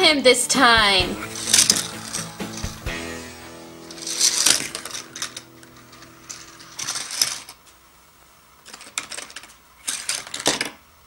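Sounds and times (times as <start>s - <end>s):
plastic toy parts clattering: 1.4s - 2.6s, 3.8s - 7.6s, 8.6s - 10.8s.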